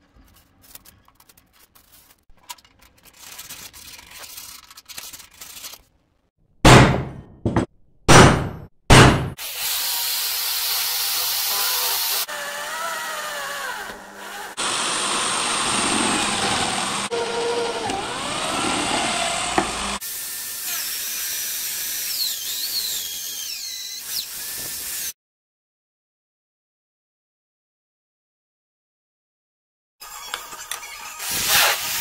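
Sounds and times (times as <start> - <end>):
electric drill boring through steel: 9.4 - 25.1.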